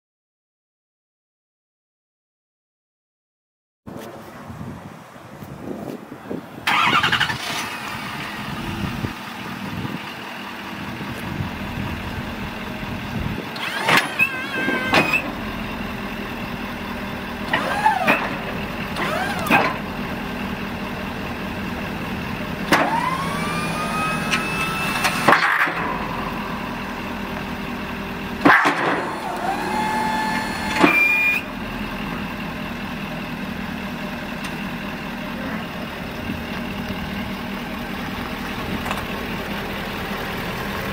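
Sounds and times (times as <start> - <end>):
truck engine idling: 6.0 - 40.9
hydraulic pump whining: 6.6 - 9.4, 11.2 - 32.8.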